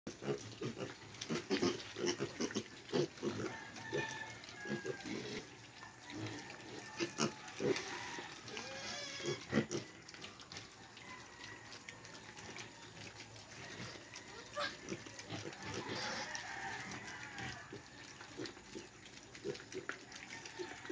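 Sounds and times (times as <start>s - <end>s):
piglets grunting: 0.1s - 10.0s, 13.6s - 16.4s.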